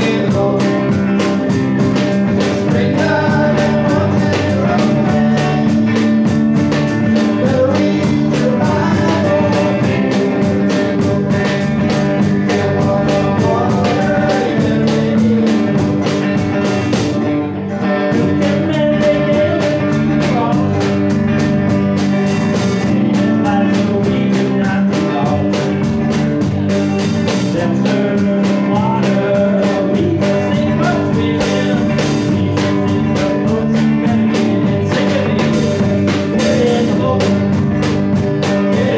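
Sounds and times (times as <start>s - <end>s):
live rock band playing: 0.0s - 38.9s.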